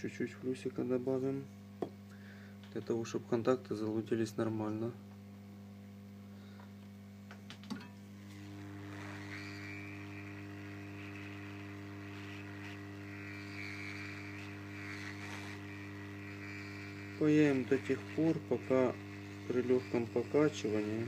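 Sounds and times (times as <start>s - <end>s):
electrical hum: 0.0s - 21.0s.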